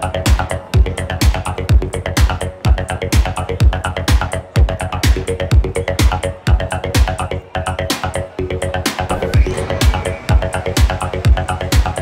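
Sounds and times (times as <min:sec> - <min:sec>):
pulsing synth line: 0:08.9 - 0:11.6.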